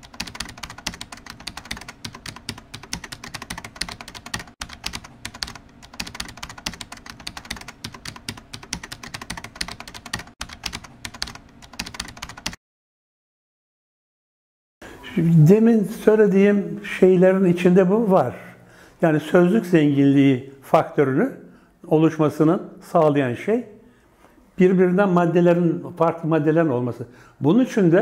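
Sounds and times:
typing on a keyboard: 0.0 - 12.6.

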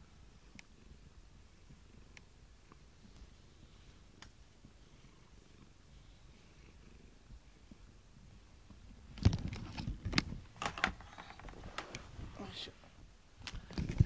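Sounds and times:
cat purring: 0.1 - 9.2.

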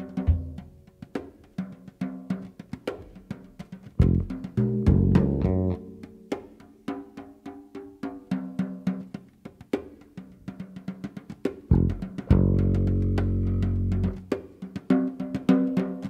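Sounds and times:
drum kit strikes: 3.9 - 6.5, 11.7 - 14.4.

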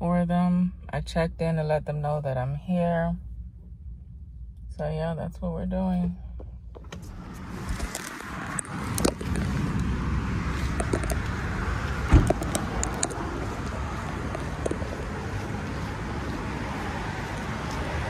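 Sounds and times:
traffic noise: 0.0 - 18.0
wind: 0.0 - 18.0
heavy thump: 12.0 - 12.5.

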